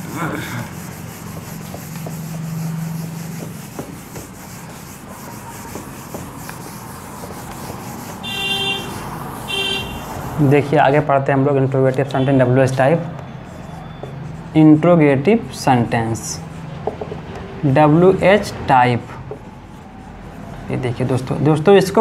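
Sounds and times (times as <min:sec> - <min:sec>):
whiteboard eraser rubbing: 0:00.0 - 0:11.0, 0:13.4 - 0:14.8, 0:15.7 - 0:17.0, 0:18.0 - 0:21.4.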